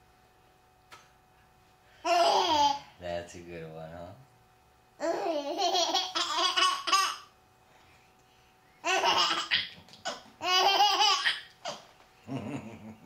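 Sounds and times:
baby laughing: 2.1s - 2.8s, 5.0s - 7.3s, 8.8s - 13.0s.

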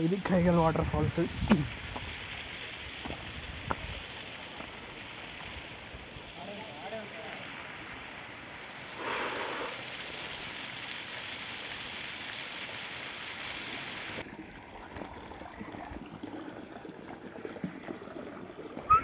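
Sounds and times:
waterfall rushing: 9.0s - 10.4s.

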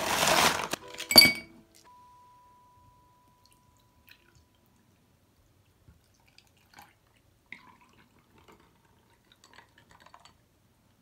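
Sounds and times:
liquid trickling into glass: 6.0s - 10.4s.

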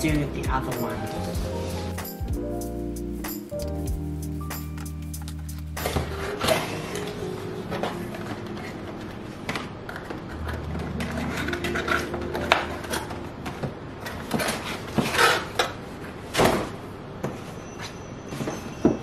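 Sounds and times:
cardboard rustling and scraping: 5.3s - 18.7s.

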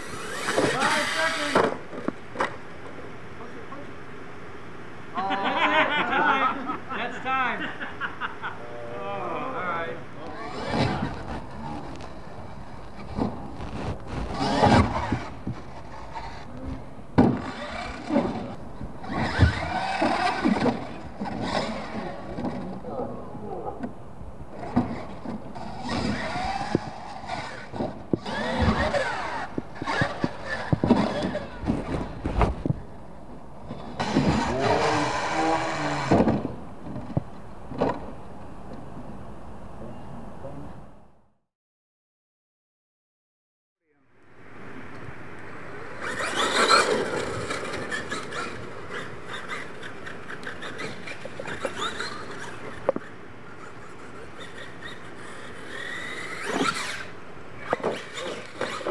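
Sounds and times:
electric motor whining: 0.0s - 2.1s, 8.6s - 22.9s, 24.6s - 32.4s, 33.8s - 36.5s, 45.8s - 58.9s
tyres scrabbling on dirt: 46.0s - 58.9s.

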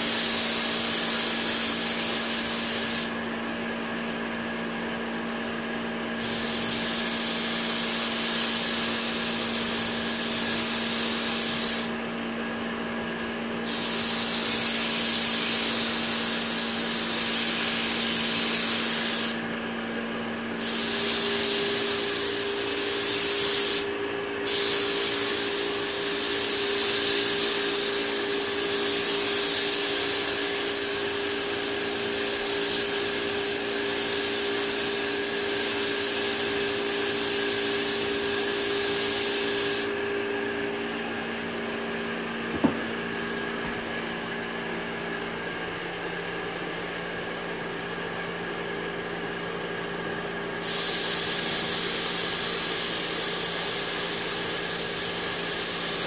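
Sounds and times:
spray gun air hiss: 0.0s - 3.2s, 6.1s - 12.0s, 13.6s - 19.5s, 20.5s - 40.7s, 50.6s - 56.0s
steady hum: 4.6s - 46.7s.

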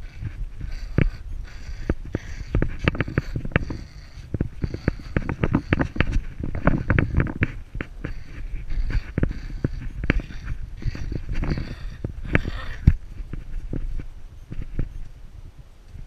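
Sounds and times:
camera jostling rumble: 0.0s - 16.0s.

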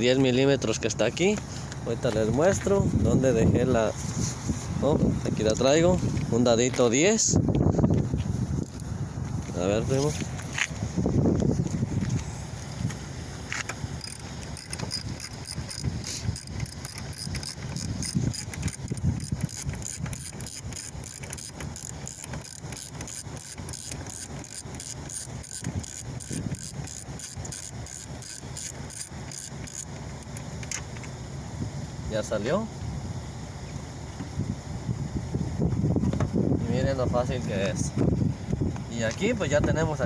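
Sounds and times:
hand ratchet clicking: 13.5s - 30.8s.

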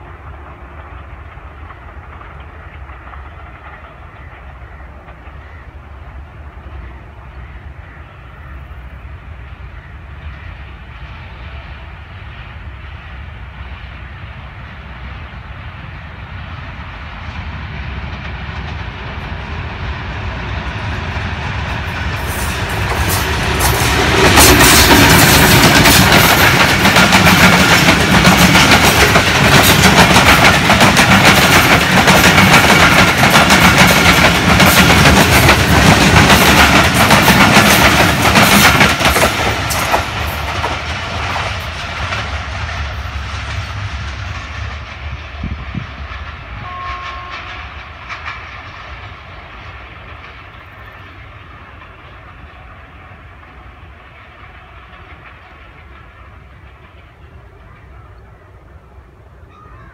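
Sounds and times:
diesel locomotive passing: 0.0s - 59.9s
train wheels clacking over rail joints: 18.0s - 58.0s.

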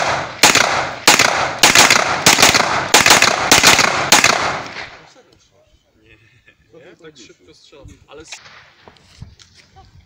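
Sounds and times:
gunshots with echo: 0.0s - 5.0s.

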